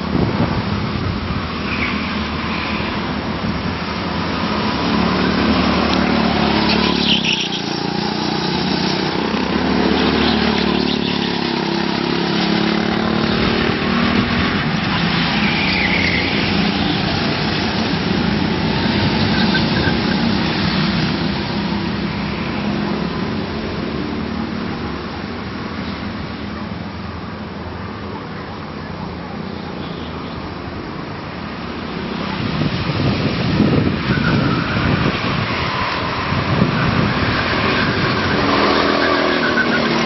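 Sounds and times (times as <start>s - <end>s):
go-kart engines running: 3.1s - 25.3s, 32.2s - 40.0s.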